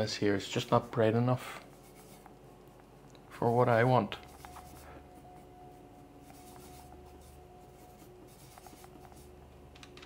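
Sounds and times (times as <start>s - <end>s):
paintbrush scratching on palette: 0.5s - 2.4s, 3.4s - 9.4s.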